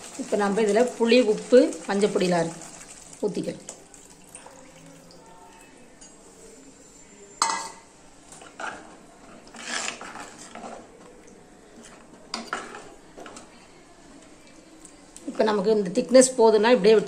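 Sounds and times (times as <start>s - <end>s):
ladle stirring and scraping pot: 6.0s - 13.5s.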